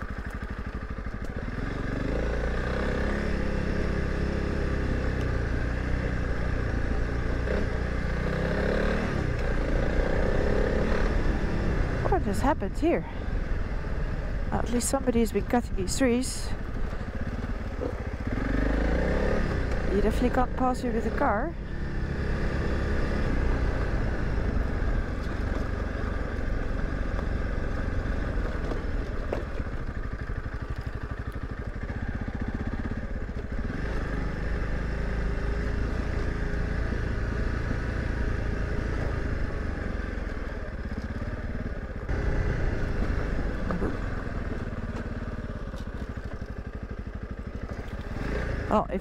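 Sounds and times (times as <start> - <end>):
motorcycle engine running: 0.0 - 49.0.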